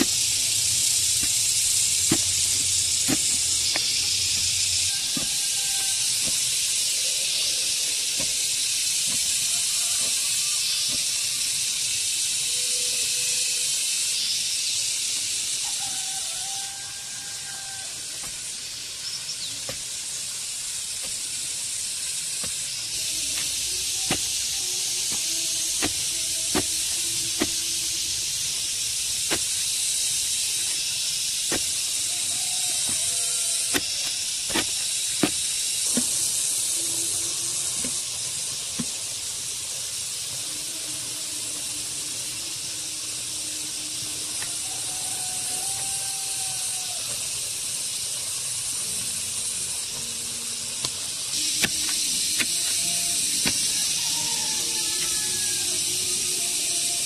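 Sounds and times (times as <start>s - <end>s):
steady high hiss: 0.0s - 57.0s
hoe chopping into soil: 1.1s - 4.5s, 23.3s - 24.4s, 25.1s - 27.6s, 29.2s - 29.6s, 31.5s - 31.8s, 33.7s - 36.2s, 51.5s - 52.8s.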